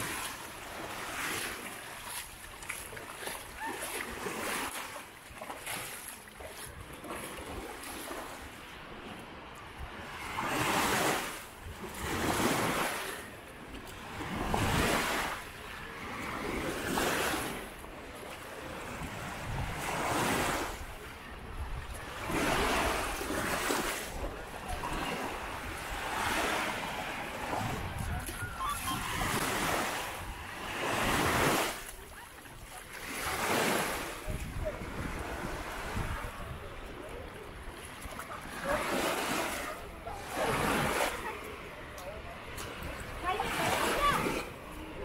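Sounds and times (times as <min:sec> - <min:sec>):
waves breaking on shore: 0:00.0 - 0:45.0
wind on microphone: 0:18.9 - 0:31.9, 0:34.1 - 0:37.3.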